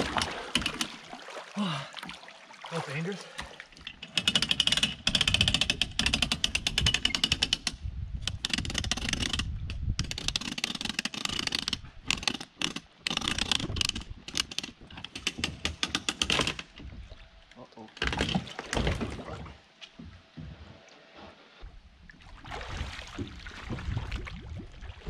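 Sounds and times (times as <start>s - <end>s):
hand winch ratcheting: 0.0s - 1.0s, 3.8s - 16.8s.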